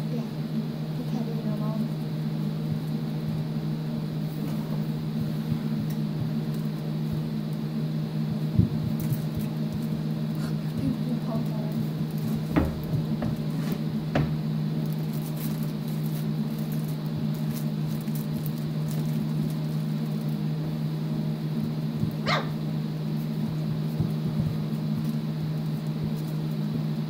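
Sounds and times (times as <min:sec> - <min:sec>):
steady low hum: 0:00.0 - 0:27.0
puppies scuffling and scrabbling: 0:02.7 - 0:07.6, 0:08.3 - 0:27.0
puppy yip: 0:22.2 - 0:22.6.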